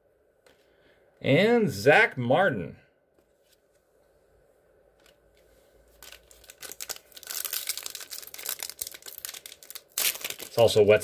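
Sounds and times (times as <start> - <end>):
foil wrapper crinkling and tearing: 5.9 - 11.0.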